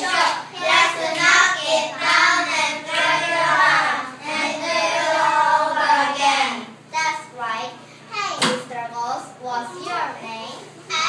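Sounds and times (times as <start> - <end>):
children singing together: 0.0 - 6.8.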